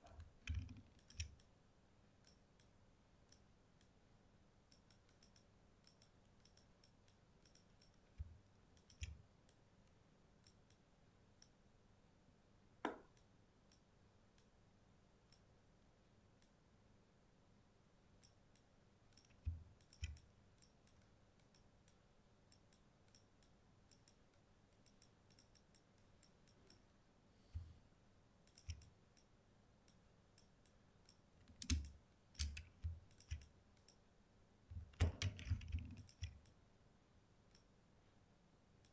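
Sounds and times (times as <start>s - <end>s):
mouse and keyboard clicks: 0.0s - 1.5s, 4.7s - 9.6s, 19.1s - 21.7s, 24.8s - 26.8s, 28.5s - 29.3s, 30.4s - 34.0s, 34.7s - 36.6s.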